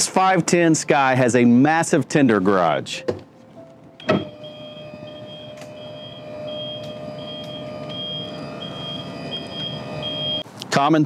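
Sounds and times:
high warning beep: 4.0s - 10.4s
motor hum with whine: 4.0s - 10.4s.

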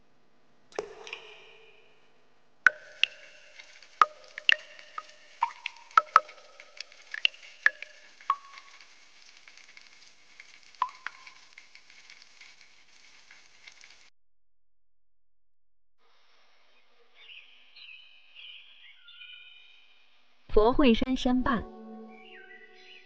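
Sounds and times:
water drops plinking into pool: 0.7s - 2.0s, 2.7s - 8.9s, 10.8s - 11.5s.

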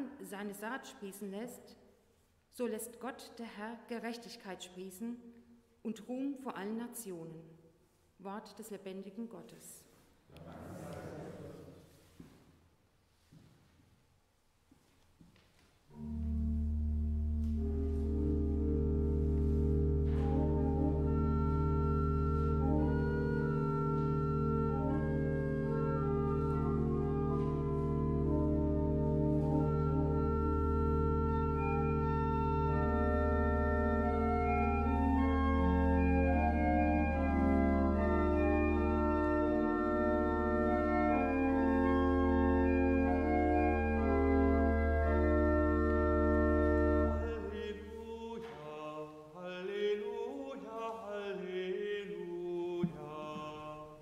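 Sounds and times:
church organ chords: 15.9s - 48.0s.

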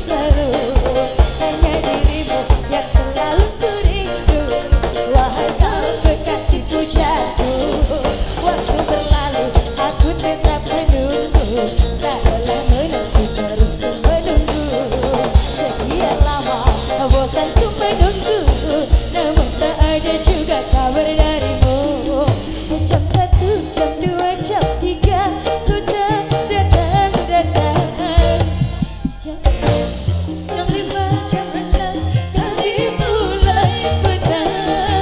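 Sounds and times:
bass guitar: 0.0s - 35.0s
drum kit beat: 0.0s - 35.0s
electric guitars: 0.0s - 35.0s
woman singing: 0.0s - 35.0s.

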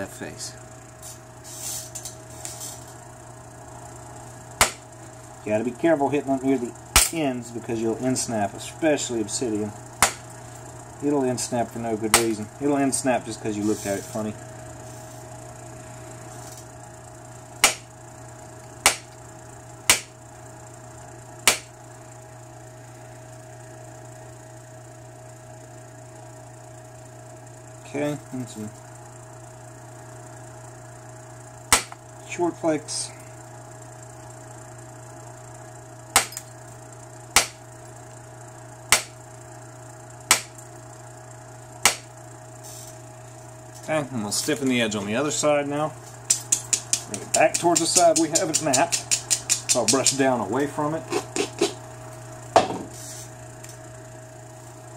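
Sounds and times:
antler striking stone: 10.0s - 10.2s, 17.6s - 17.9s, 18.9s - 19.1s, 19.9s - 20.1s, 31.7s - 32.0s, 37.4s - 37.6s, 38.9s - 39.2s, 40.3s - 40.5s, 41.8s - 42.1s.

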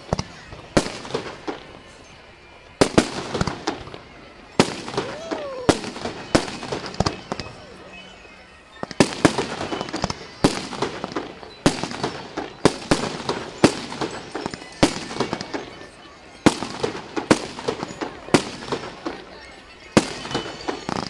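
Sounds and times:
firework crackling: 0.0s - 2.1s, 2.8s - 7.9s, 8.8s - 21.0s
firework shells bursting: 8.8s - 15.7s.

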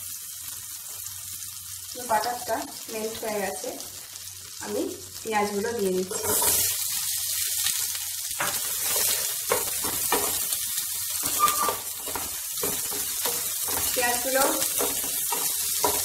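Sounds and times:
onions sizzling in a frying pan: 0.0s - 16.0s
wooden spatula scraping pan: 6.1s - 6.8s, 8.4s - 10.4s, 11.2s - 16.0s.

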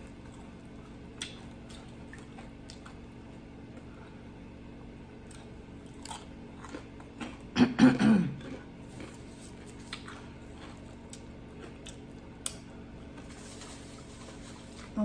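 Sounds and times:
chewing and mouth clicks: 0.0s - 3.1s, 5.2s - 7.6s, 8.4s - 13.3s
woman coughing: 7.6s - 8.5s.

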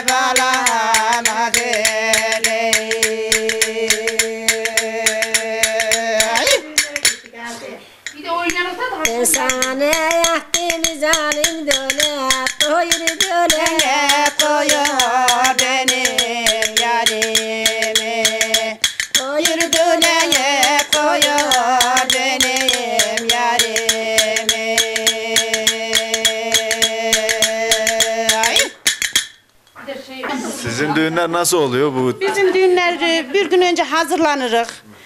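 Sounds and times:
woman singing folk song: 0.0s - 28.8s
tea saucers clinking: 8.0s - 23.9s, 26.6s - 29.8s.

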